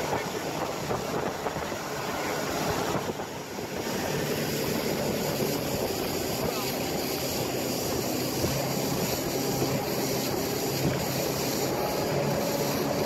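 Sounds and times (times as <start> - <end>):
boat motor droning: 0.0 - 13.0
wind and water rushing: 0.0 - 13.0.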